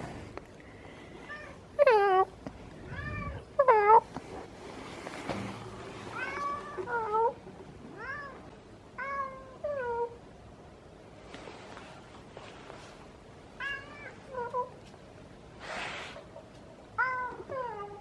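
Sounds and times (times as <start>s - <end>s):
cat meowing: 2.9s - 4.0s.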